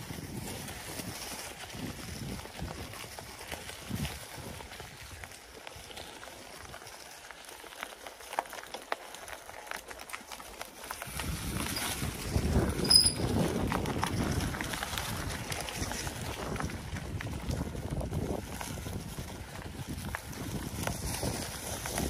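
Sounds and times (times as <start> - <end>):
wind buffeting on microphone: 0.0 - 6.0, 11.0 - 22.0
bike tyres crunching leaves: 0.0 - 22.0.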